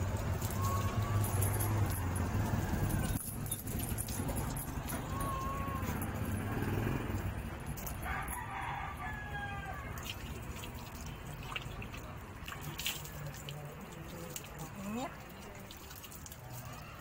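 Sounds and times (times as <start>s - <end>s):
water splashing onto wet fur: 0.0s - 6.0s, 9.7s - 17.0s
rooster crowing: 8.0s - 10.0s.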